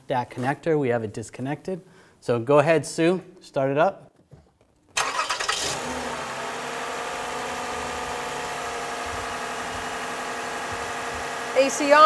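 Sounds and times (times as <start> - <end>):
car engine starting and idling: 5.0 - 12.0.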